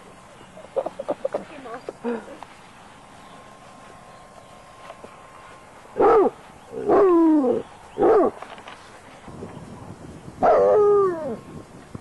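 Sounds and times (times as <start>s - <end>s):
dog barking and baying: 6.0s - 8.4s, 10.4s - 11.4s.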